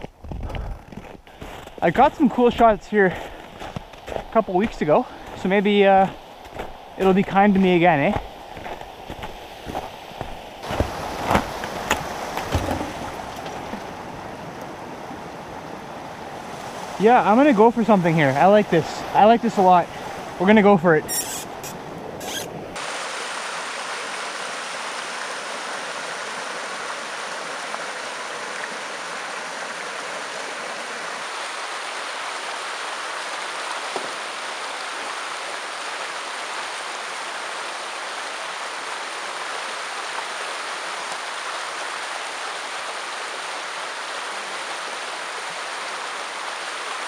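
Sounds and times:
creek water flowing: 0:00.8 - 0:47.0.

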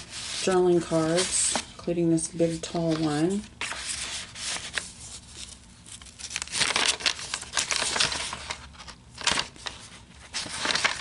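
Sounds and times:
paper pages rustling: 0:00.0 - 0:01.6, 0:02.5 - 0:11.0.

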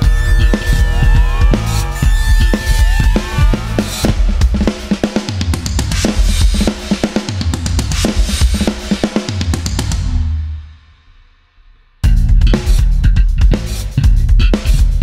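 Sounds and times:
bass guitar: 0:00.0 - 0:04.6, 0:12.0 - 0:15.0
drum kit beat: 0:00.0 - 0:10.5, 0:12.0 - 0:15.0.

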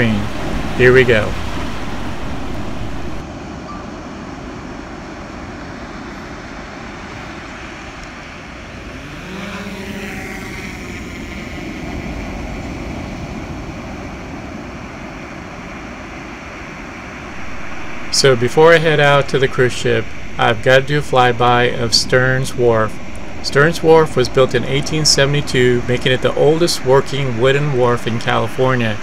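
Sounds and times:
drone propellers whining: 0:00.0 - 0:03.2, 0:07.8 - 0:14.4, 0:16.4 - 0:29.0
steady rushing noise: 0:00.0 - 0:29.0.

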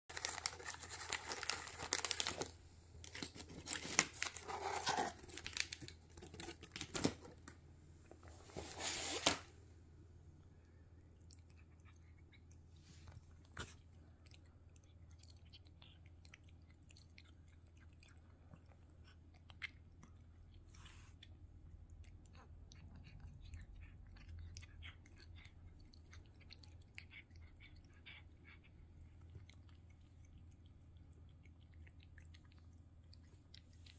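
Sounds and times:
cat licking and chewing: 0:00.1 - 0:07.1, 0:10.3 - 0:33.9
plastic packet crinkling: 0:00.1 - 0:07.3.

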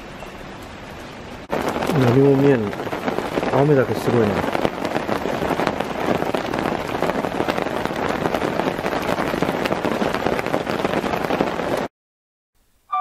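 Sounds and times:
heavy rain falling: 0:00.0 - 0:11.9.

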